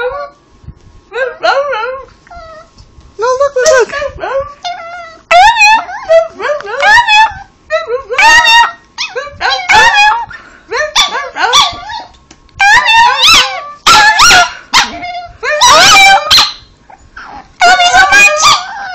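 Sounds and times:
dog yowling: 0:04.4 - 0:07.5, 0:08.1 - 0:10.3, 0:10.9 - 0:18.9.

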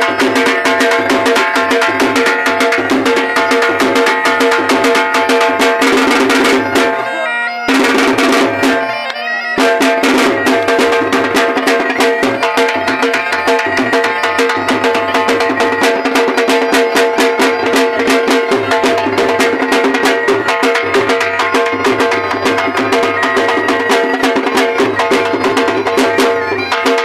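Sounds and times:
drums beating fast dance rhythm: 0:00.0 - 0:07.1, 0:07.7 - 0:09.0, 0:09.6 - 0:27.0
gourd pipe melody over drone: 0:06.4 - 0:26.8.

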